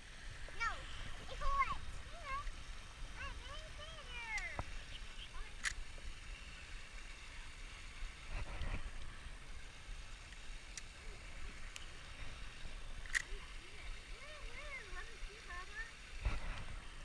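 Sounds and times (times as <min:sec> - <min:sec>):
reel rustle: 0:00.0 - 0:17.0
fishing reel clicks: 0:05.5 - 0:06.0, 0:13.0 - 0:13.6
wind on microphone: 0:08.2 - 0:09.6, 0:16.2 - 0:17.0.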